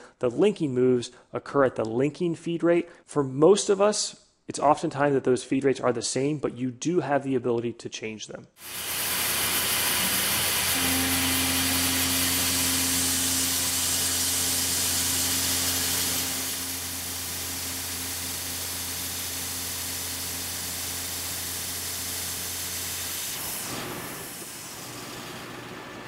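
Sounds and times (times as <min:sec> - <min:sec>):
mill spindle humming: 0:08.6 - 0:26.0
mist coolant hissing: 0:08.6 - 0:26.0.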